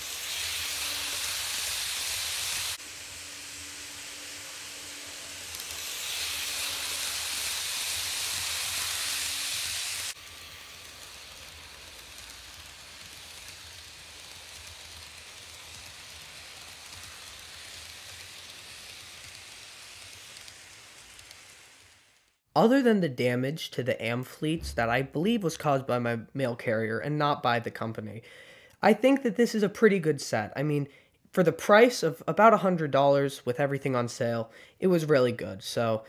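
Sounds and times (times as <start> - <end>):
model train whirring on track: 0.0 - 22.4.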